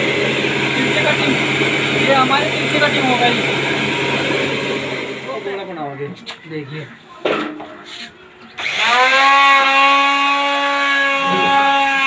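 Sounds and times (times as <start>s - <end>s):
electric router motor running: 0.0s - 5.6s, 8.6s - 12.0s.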